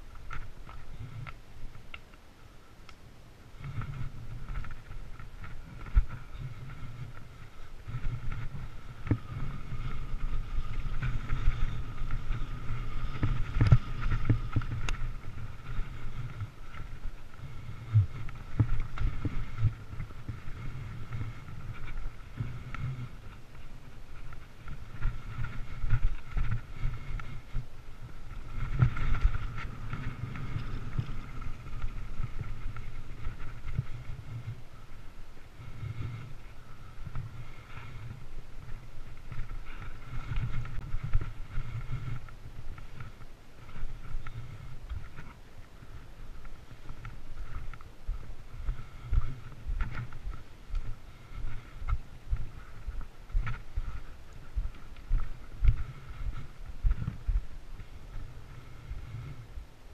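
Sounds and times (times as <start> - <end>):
wind on microphone: 0.0 - 2.0, 3.4 - 59.9
steady whirring hum: 0.0 - 59.9
bike tyres rumbling on dirt: 3.5 - 59.9
bike knocking and rattling: 3.6 - 52.8.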